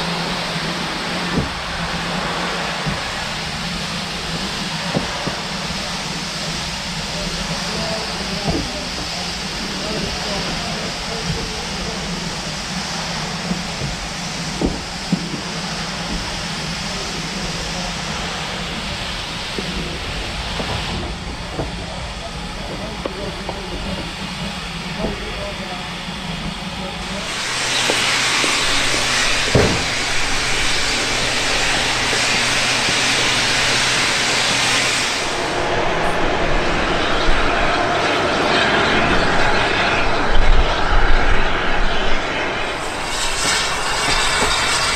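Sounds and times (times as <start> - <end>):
steam locomotive hissing: 0.0 - 44.9
sharp knock: 29.5 - 29.9.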